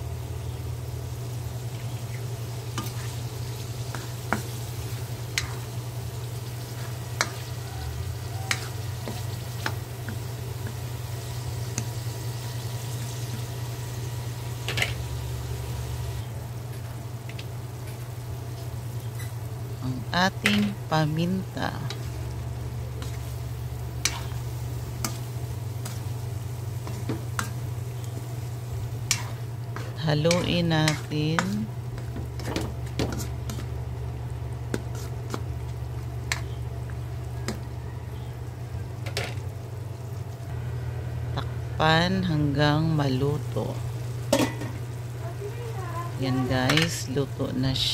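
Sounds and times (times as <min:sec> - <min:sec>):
meat sizzling in a wok: 0:00.0 - 0:47.9
steady low hum: 0:00.0 - 0:47.9
spatula scraping a wok: 0:02.7 - 0:05.8, 0:06.5 - 0:11.9, 0:22.9 - 0:28.3, 0:29.0 - 0:33.8, 0:34.7 - 0:35.4
spatula scraping metal wok: 0:22.9 - 0:26.1, 0:29.0 - 0:33.8.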